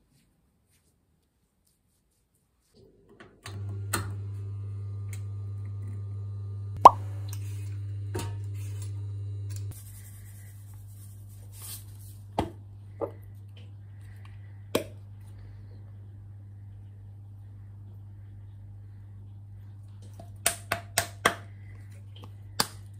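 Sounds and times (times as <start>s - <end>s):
oven fan motor humming: 3.2s - 14.7s.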